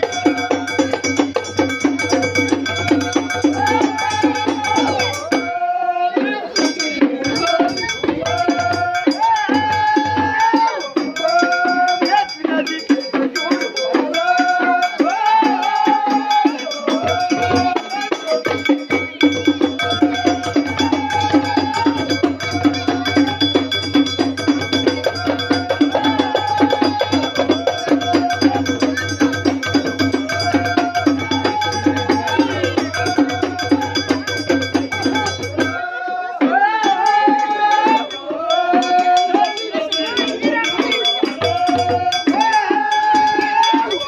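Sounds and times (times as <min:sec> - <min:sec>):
frame drums beating: 0:00.0 - 0:44.0
men's chorus chanting: 0:00.0 - 0:44.0.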